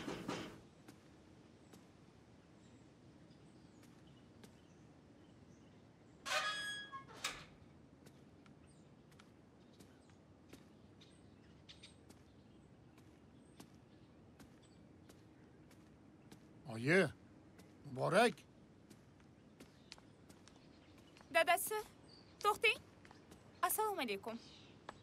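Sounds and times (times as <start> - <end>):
metallic hinge squeal: 6.3 - 7.4
gate scrape or clatter: 6.3 - 7.5.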